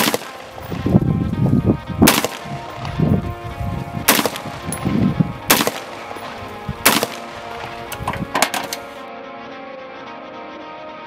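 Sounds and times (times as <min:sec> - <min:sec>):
rifle shots: 0:00.0 - 0:00.9, 0:02.0 - 0:03.1, 0:04.0 - 0:09.0.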